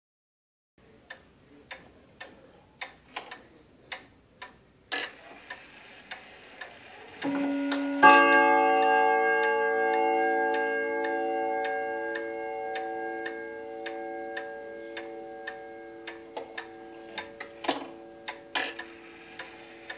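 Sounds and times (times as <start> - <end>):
wall clock ticking: 0.8 - 19.9
clock chime striking: 7.1 - 19.9.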